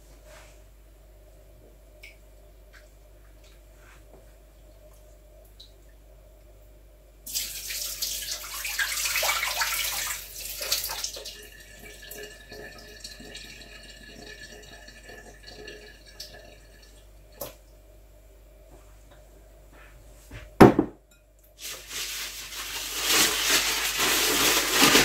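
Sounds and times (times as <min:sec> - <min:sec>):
water splashing into sink: 0:07.3 - 0:17.6.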